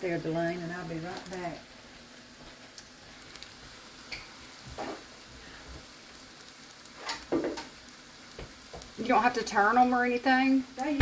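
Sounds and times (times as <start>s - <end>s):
oil sizzling and bubbling: 0.0s - 11.0s.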